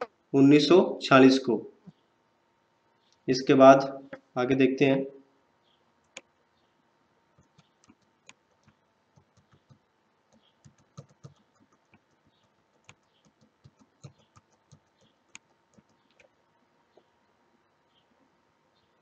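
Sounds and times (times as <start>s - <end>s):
faint steady hum: 0.0s - 19.0s
computer controls clicking: 6.0s - 6.3s, 7.4s - 16.4s.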